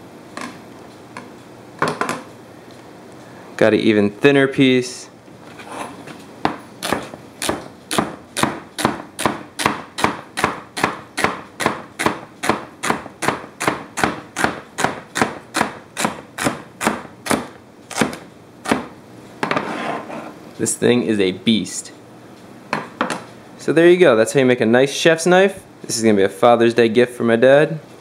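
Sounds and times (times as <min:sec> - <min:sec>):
knife chopping celery on board: 0:06.5 - 0:18.9.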